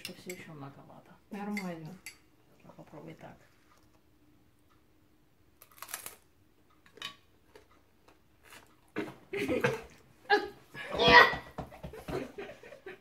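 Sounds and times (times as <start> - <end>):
boy groaning: 10.3 - 11.4.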